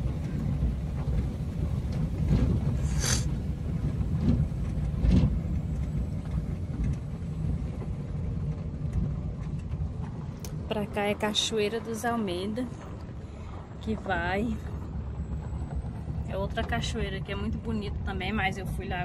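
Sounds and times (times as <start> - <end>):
car interior road rumble: 0.0 - 19.0
car knocks and jolts: 0.1 - 7.0.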